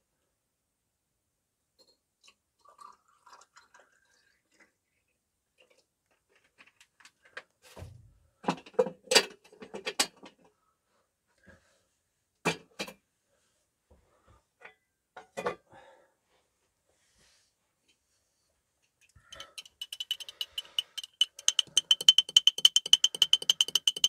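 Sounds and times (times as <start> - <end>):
objects knocking and clattering: 5.6 - 10.4, 12.4 - 13.0, 19.3 - 24.0.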